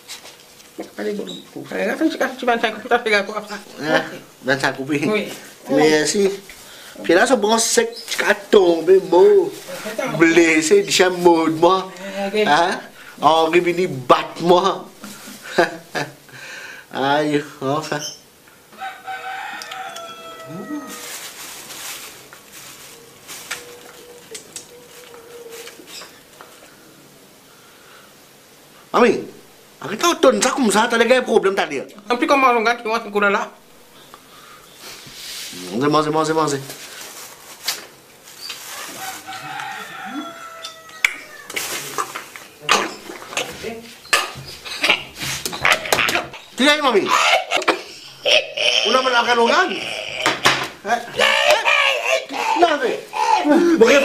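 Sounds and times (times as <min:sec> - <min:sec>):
rooster crowing: 0:18.7 - 0:21.6, 0:38.6 - 0:41.7
plastic bag crinkling: 0:19.8 - 0:26.1, 0:36.5 - 0:40.0
mumbled voice: 0:47.0 - 0:54.0.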